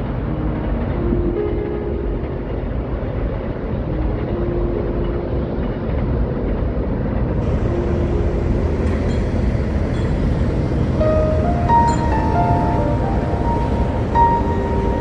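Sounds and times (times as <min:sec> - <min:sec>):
low engine rumble: 0:00.0 - 0:15.0.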